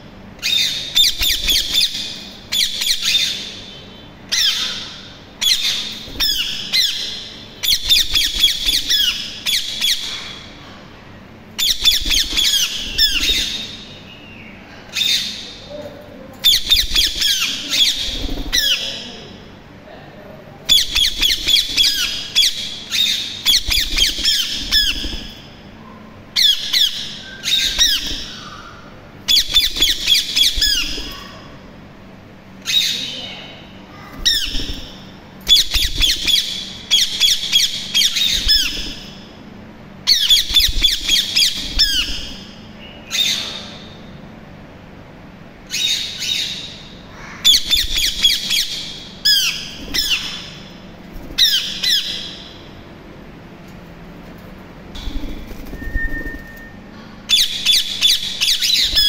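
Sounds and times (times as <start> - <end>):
parakeets squawking: 0.4 - 10.6, 11.6 - 14.1, 16.4 - 19.4, 20.7 - 25.6, 26.4 - 31.6, 32.6 - 39.3, 40.1 - 44.0, 45.7 - 52.7, 55.0 - 59.0.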